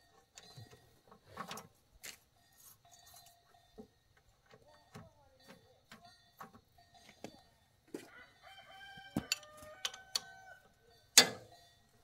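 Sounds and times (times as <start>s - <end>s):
rooster crowing: 8.0s - 10.8s
wrench clinking on metal: 9.2s - 10.5s, 11.1s - 11.6s.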